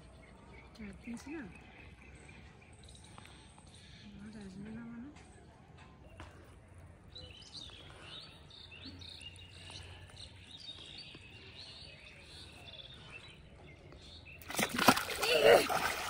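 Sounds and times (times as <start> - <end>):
birds chirping faintly: 0.0 - 16.0
fish splashing out of water: 14.4 - 16.0.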